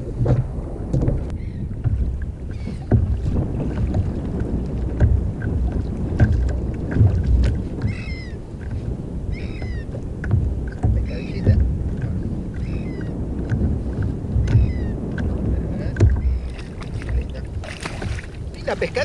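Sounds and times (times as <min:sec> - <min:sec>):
water slapping a hull: 0:00.0 - 0:19.0
wind rumble on microphone: 0:00.0 - 0:19.0
small knocks: 0:00.2 - 0:04.2, 0:04.8 - 0:08.0, 0:09.5 - 0:12.7, 0:15.9 - 0:17.2.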